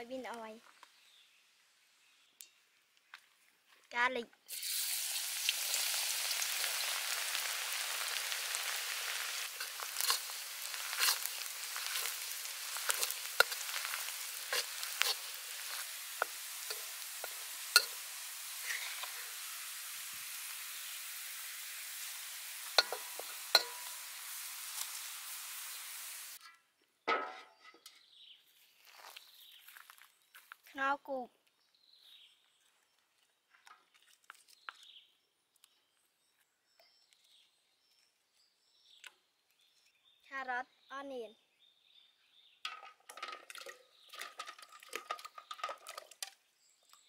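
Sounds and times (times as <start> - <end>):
garlic sizzling in oil: 4.5 - 26.5.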